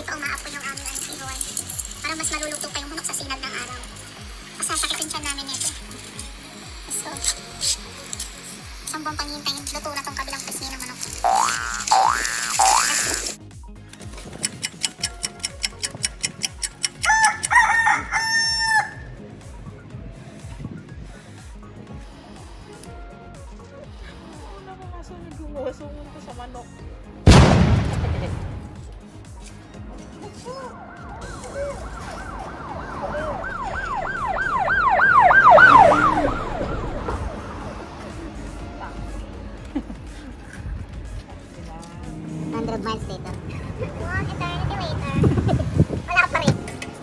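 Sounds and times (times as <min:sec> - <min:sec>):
faint music beat: 0:00.0 - 0:47.0
clock-like ticking: 0:14.4 - 0:17.6
rooster crowing: 0:17.0 - 0:19.2, 0:32.0 - 0:37.4
siren sweeping up and down: 0:30.6 - 0:39.2.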